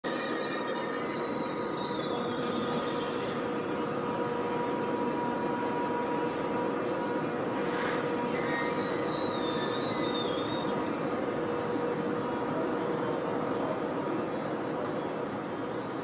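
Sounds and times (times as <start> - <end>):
electric train humming and whining: 0.0 - 16.0.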